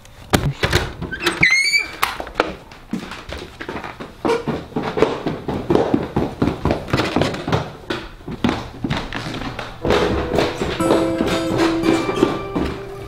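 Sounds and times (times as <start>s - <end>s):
footsteps in echoing stairwell: 2.1s - 13.0s.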